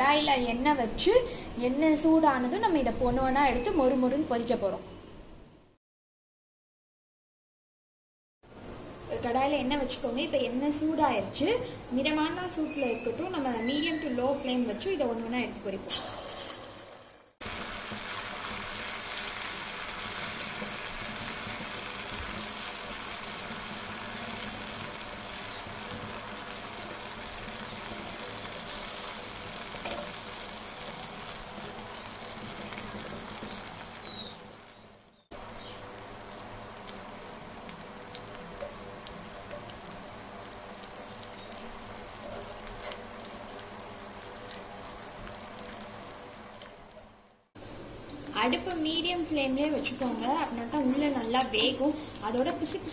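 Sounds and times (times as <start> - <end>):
food deep-frying in oil: 12.0 - 52.9.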